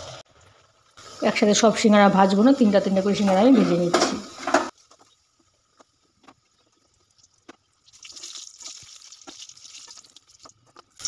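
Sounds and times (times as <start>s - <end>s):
frying oil sizzling: 0.0s - 11.0s
oil popping: 4.5s - 11.0s.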